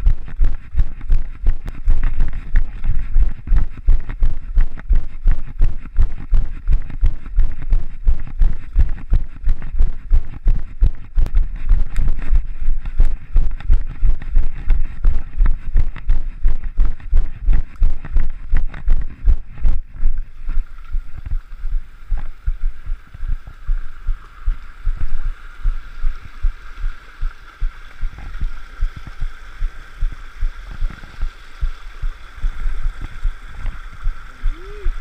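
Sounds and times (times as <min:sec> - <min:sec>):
rocky stream rushing: 0:22.3 - 0:35.0.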